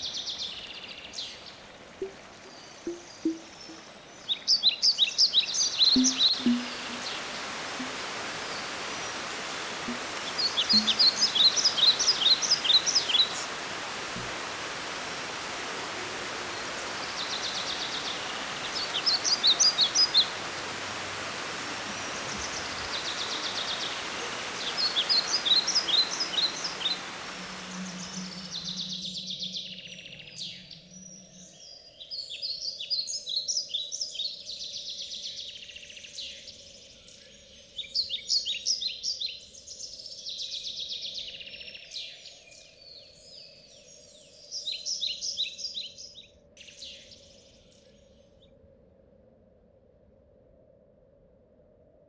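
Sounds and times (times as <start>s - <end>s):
songbird chirping: 0.0s - 48.1s
flowing water rushing: 1.1s - 31.0s.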